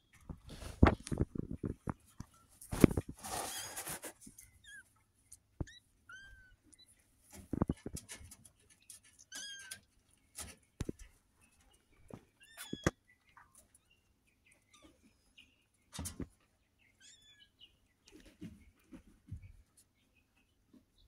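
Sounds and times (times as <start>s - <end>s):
high-pitched chirping calls: 16.8s - 17.8s.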